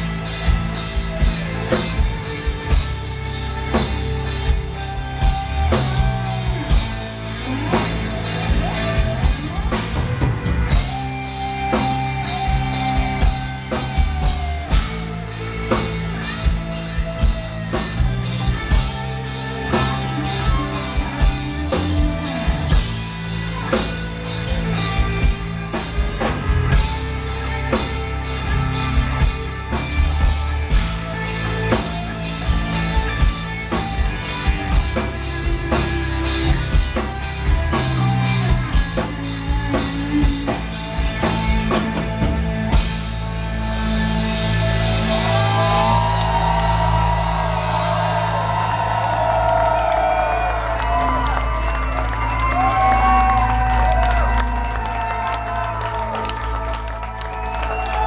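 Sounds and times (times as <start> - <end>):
driving drum beat: 0.0 - 58.0
metal band playing live: 0.0 - 58.0.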